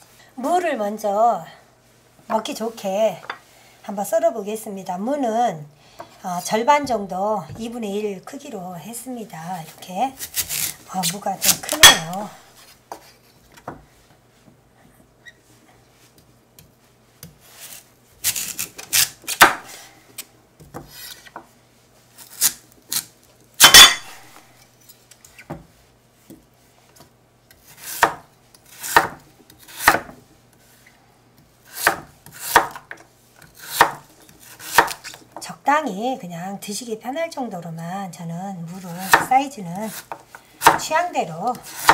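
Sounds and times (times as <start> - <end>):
knife chopping on wooden board: 11.4 - 12.2, 19.0 - 19.7, 23.6 - 24.2, 27.6 - 30.2, 31.7 - 35.2, 39.0 - 39.3, 39.9 - 41.9.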